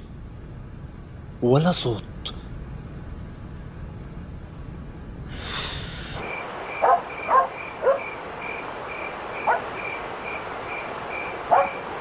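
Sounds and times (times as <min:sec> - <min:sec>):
cricket chirping: 0:06.2 - 0:12.0.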